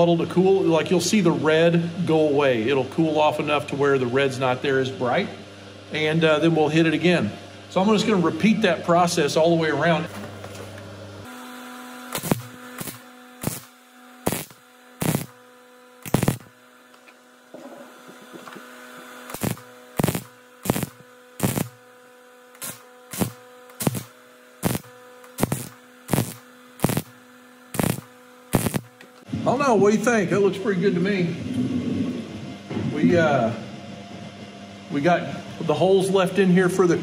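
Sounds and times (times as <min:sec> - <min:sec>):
steady hum: 0:00.0 - 0:37.0
welder arc crackling: 0:12.0 - 0:17.2, 0:18.2 - 0:29.3.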